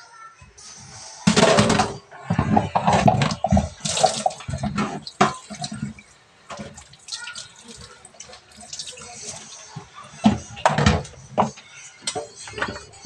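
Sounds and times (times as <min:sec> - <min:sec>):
water splashing into metal sink: 0:01.3 - 0:12.8
water dripping: 0:03.2 - 0:11.2.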